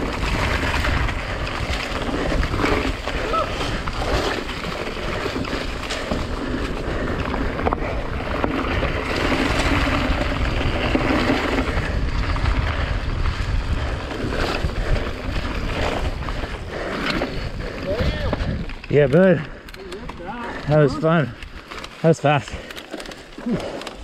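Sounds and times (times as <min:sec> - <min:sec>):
bike knocking over bumps: 0:00.0 - 0:12.4
wind on microphone: 0:00.0 - 0:18.9
bike tyres rolling on dirt: 0:00.0 - 0:24.0.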